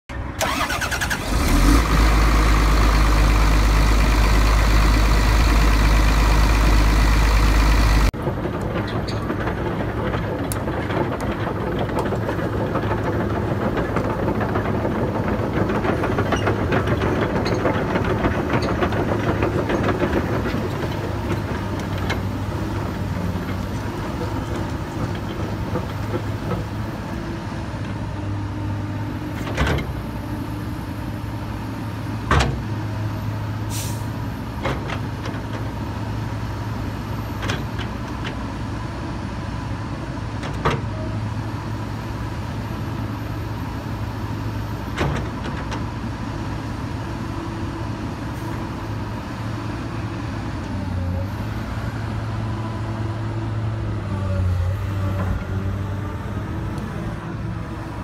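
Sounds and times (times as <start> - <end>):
excavator diesel engine running: 0.1 - 58.0
excavator arm and bucket moving: 0.2 - 39.1, 40.1 - 58.0.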